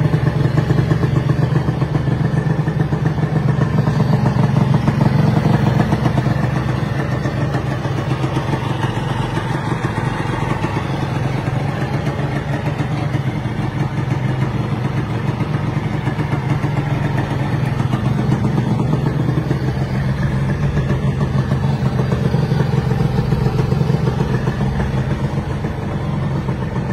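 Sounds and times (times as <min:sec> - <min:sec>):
two-stroke engine idling: 0:00.0 - 0:26.9.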